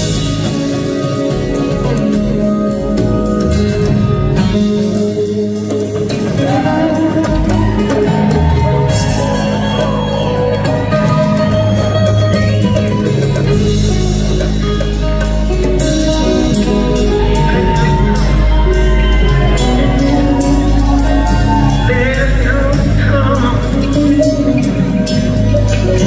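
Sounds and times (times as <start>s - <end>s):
rock band playing live: 0.0s - 26.0s
person singing lead vocal: 5.7s - 9.9s, 15.9s - 26.0s.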